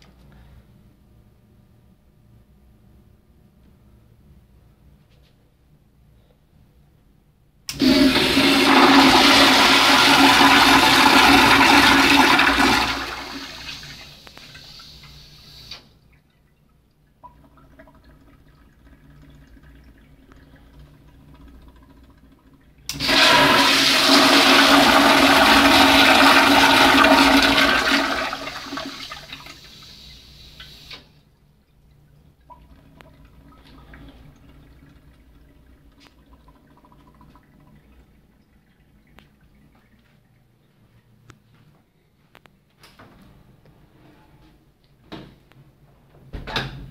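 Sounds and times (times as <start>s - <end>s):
toilet flushing: 7.7s - 16.1s, 17.1s - 41.0s
water trickling: 14.3s - 22.9s, 31.4s - 41.1s.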